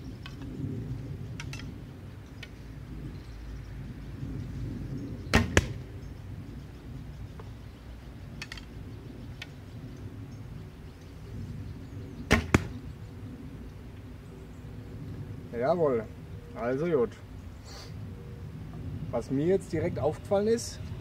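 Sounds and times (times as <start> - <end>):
arrow nocking clicks: 1.4 - 1.8, 5.4 - 5.8, 12.3 - 12.8
bow string snapping: 1.4 - 1.8, 5.4 - 5.8, 12.3 - 12.8
arrow striking target: 5.3 - 5.8, 12.3 - 12.8.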